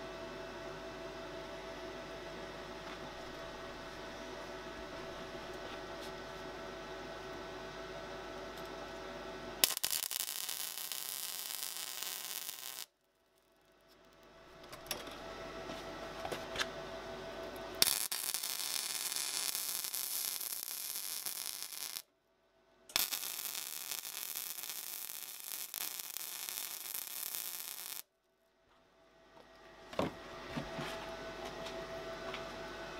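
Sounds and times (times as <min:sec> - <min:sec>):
welding arc hissing and crackling: 0:09.6 - 0:12.9, 0:17.8 - 0:22.1, 0:22.9 - 0:28.1.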